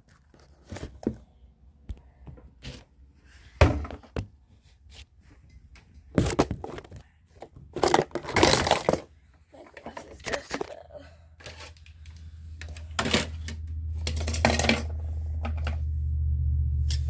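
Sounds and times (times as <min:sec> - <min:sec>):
objects knocking and thunking: 0:03.5 - 0:04.4, 0:05.4 - 0:15.9.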